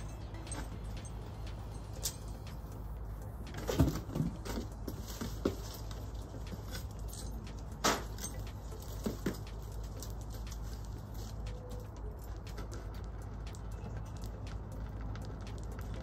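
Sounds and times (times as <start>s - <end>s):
metal tongs and chain clanking: 0.0s - 2.7s, 3.4s - 10.6s
low background noise: 0.0s - 16.0s.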